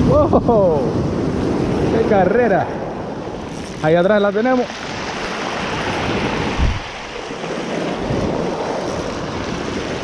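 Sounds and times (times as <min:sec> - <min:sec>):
surf washing over rocks: 0:00.0 - 0:10.0
wind buffeting microphone: 0:04.7 - 0:10.0.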